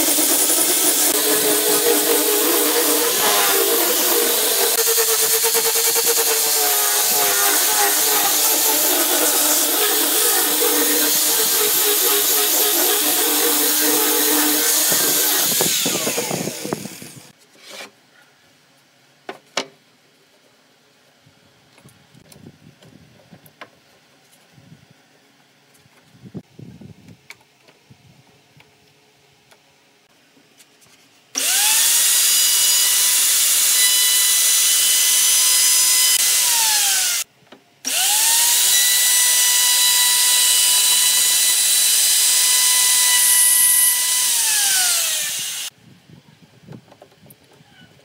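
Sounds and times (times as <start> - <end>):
router cutting wood hiss: 0.0 - 17.3, 37.9 - 45.7
router motor whine: 0.0 - 17.3, 31.4 - 37.3, 37.9 - 45.7.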